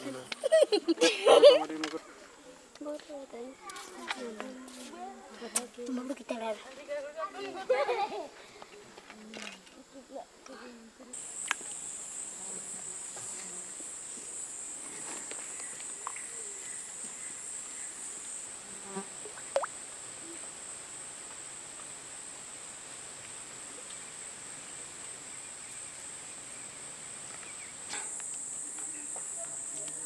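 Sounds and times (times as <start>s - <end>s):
insects chorus: 8.5s - 30.0s.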